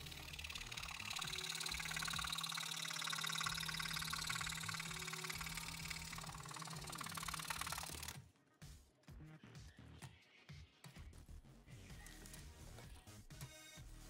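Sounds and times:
motor hum: 0.0s - 8.2s
scroll saw cutting thin wood: 0.0s - 8.2s.

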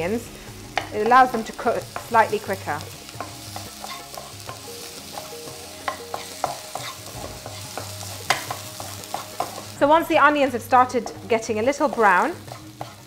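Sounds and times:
onions sizzling in oil: 0.0s - 13.0s
wooden spoon stirring: 11.9s - 13.0s.

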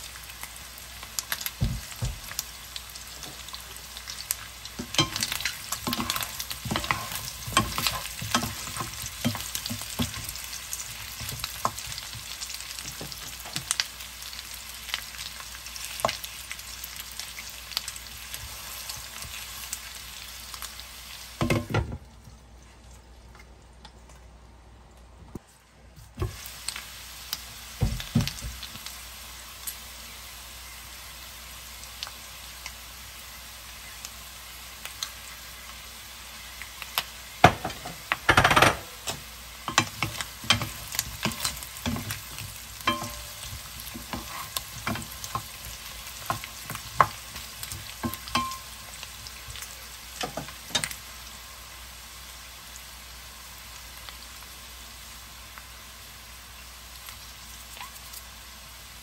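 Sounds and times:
potatoes and sausages sizzling: 0.0s - 23.8s, 25.4s - 59.0s
wooden spatula scraping a pan: 4.8s - 12.2s, 39.7s - 48.4s.

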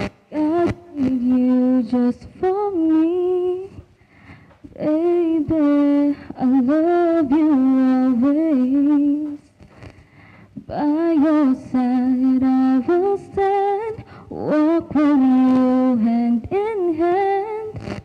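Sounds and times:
woman singing solo: 0.3s - 3.8s.

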